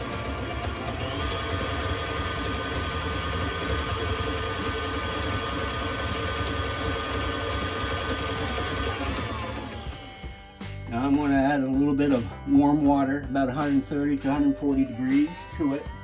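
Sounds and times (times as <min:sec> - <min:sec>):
stand mixer motor whine: 0:00.0 - 0:10.3.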